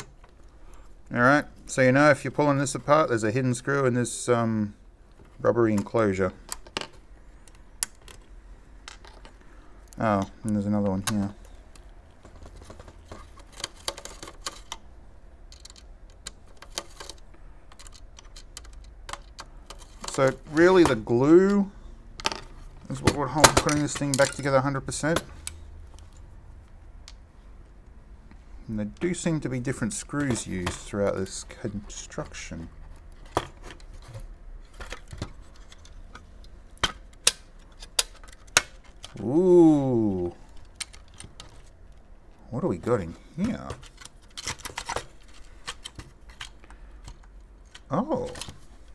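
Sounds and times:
plastic and metal parts clicking: 5.1s - 21.6s, 29.8s - 39.2s, 40.4s - 42.1s, 43.0s - 48.9s.

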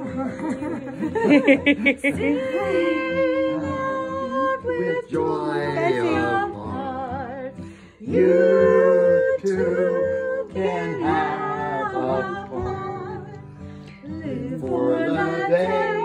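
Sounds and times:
acoustic guitar: 0.0s - 16.0s
woman singing a slow song: 0.0s - 16.0s.

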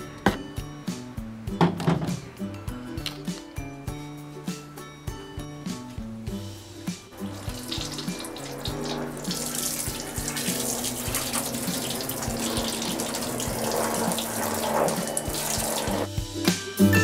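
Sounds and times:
water dripping: 7.1s - 16.1s
water spurting from hose: 7.1s - 16.1s
water splashing into metal sink: 7.2s - 16.1s.

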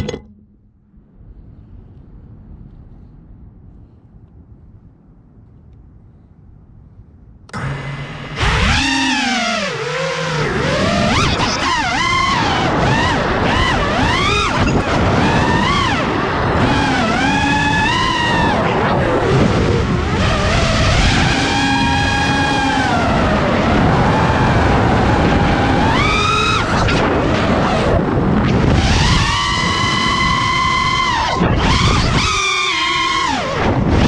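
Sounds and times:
drone motors whining: 7.5s - 34.0s.

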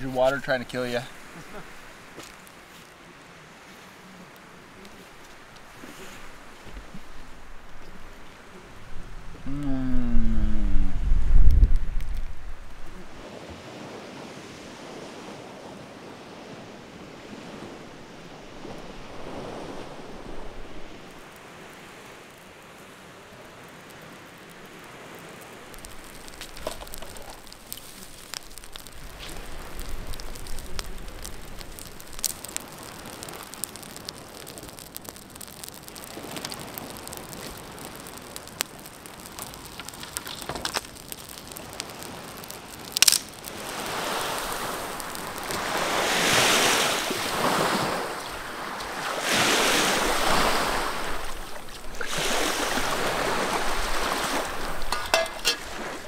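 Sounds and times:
campfire crackling and popping: 0.0s - 13.2s, 18.5s - 56.0s
lake waves washing on sand: 0.0s - 56.0s.

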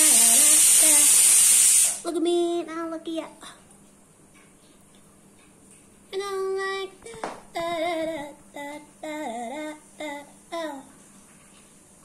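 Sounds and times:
high sing-song voice: 0.0s - 1.2s, 6.1s - 11.0s
brief noisy burst: 0.1s - 2.0s.

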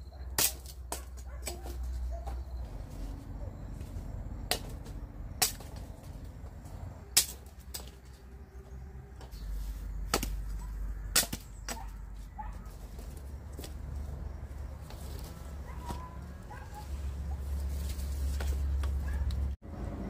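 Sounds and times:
blade chopping sugarcane: 0.4s - 1.9s, 4.4s - 6.2s, 7.1s - 8.1s, 10.0s - 12.0s.

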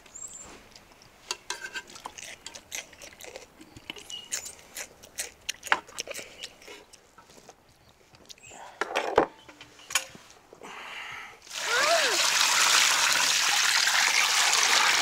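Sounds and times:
child chewing raw vegetable: 0.2s - 8.5s.

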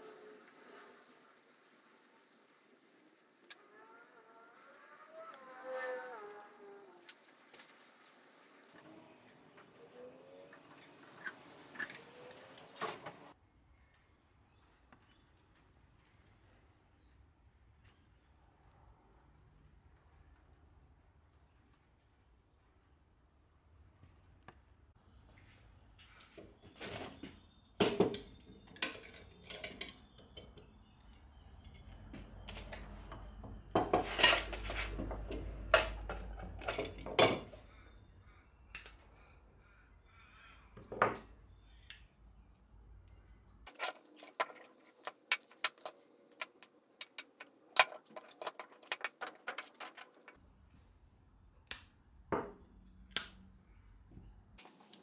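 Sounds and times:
metal clanking on metal and wood: 10.6s - 13.3s, 26.4s - 37.6s, 43.7s - 50.4s.

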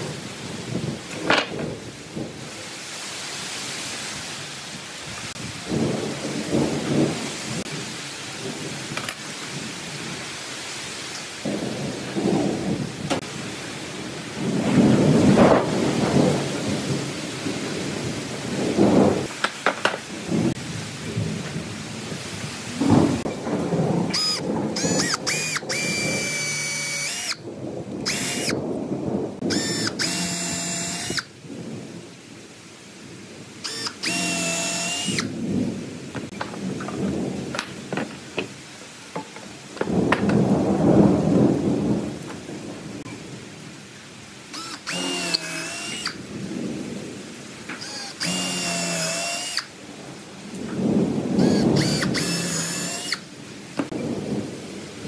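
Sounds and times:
power drill whirring: 24.1s - 27.4s, 28.1s - 28.6s, 29.4s - 31.3s, 33.6s - 35.3s, 44.5s - 46.2s, 47.8s - 49.7s, 51.4s - 53.2s.

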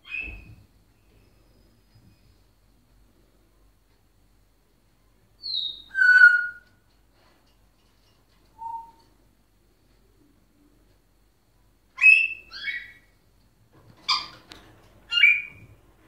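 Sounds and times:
parrot whistling and calling: 5.4s - 6.6s, 8.6s - 9.0s, 12.0s - 13.1s, 15.1s - 15.6s.

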